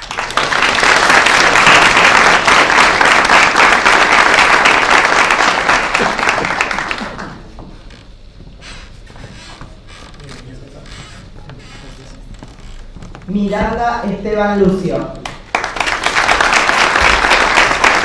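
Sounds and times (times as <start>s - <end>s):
crowd applause: 0.0s - 7.6s, 15.2s - 18.0s.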